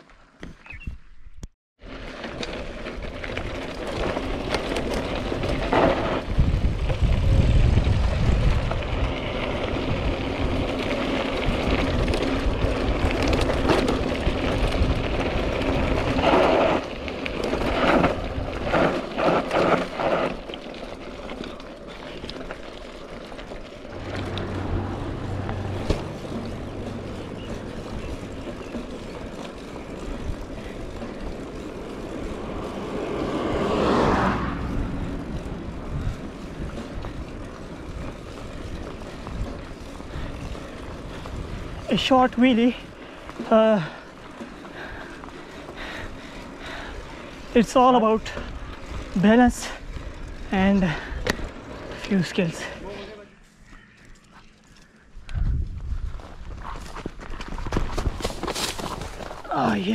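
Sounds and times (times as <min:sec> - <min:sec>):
tyres rolling on rough trail: 0:01.8 - 0:59.9
wind buffeting microphone: 0:03.4 - 0:19.2, 0:23.8 - 0:47.6, 0:55.2 - 0:59.9
bike knocks and rattles: 0:09.8 - 0:21.6, 0:23.3 - 0:32.7, 0:56.1 - 0:59.9.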